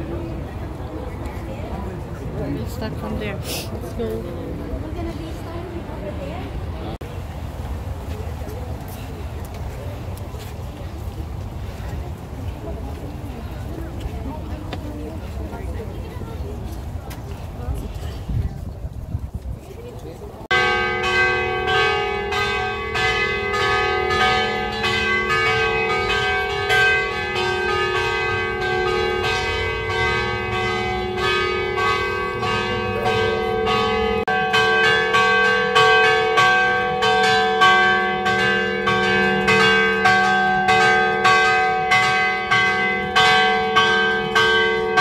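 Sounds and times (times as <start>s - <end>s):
church bells ringing a fast peal: 20.5s - 45.0s.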